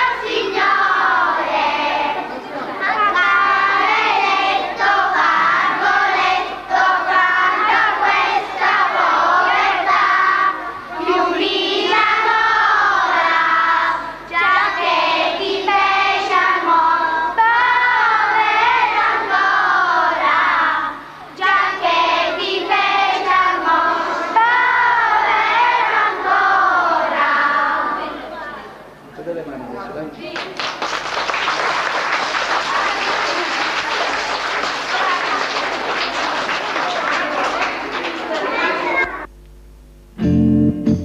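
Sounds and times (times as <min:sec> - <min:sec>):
children singing in unison: 0:00.0 - 0:28.3.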